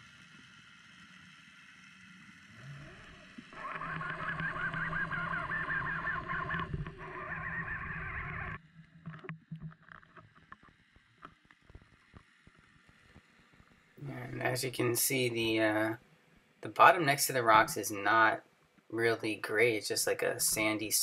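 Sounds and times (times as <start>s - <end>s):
underwater low hum: 0.0s - 14.8s
warbling whine: 2.4s - 8.6s
faint clicks and knocks: 8.8s - 13.9s.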